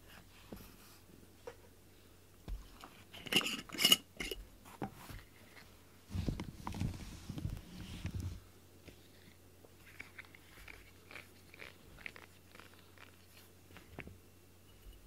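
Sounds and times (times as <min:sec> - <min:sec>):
glass clinking: 0:03.3 - 0:04.4.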